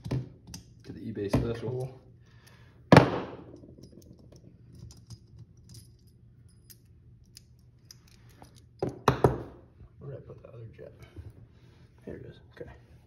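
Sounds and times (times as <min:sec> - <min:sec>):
light clicks of metal parts: 0:03.6 - 0:08.9.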